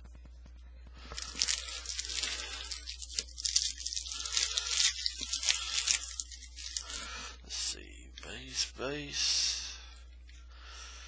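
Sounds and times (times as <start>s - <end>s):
foil wrapper crinkling and tearing: 1.1s - 7.1s.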